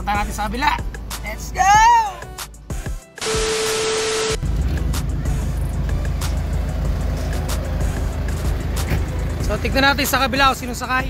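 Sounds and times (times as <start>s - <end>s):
static hiss with hum: 3.2s - 4.4s
vehicle engine rumbling: 4.2s - 11.0s.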